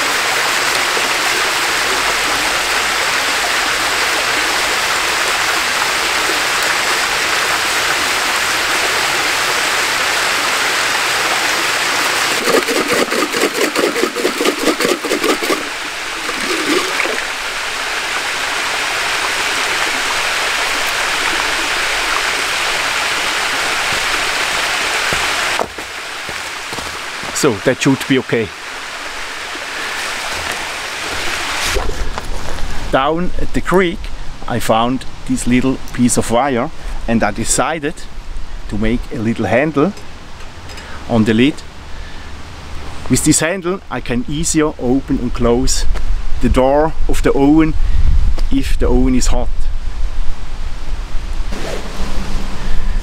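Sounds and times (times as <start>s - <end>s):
creek and small waterfall rushing: 0.0s - 43.6s, 49.7s - 53.0s
rhythmic splashing of can rinsing: 11.8s - 27.4s.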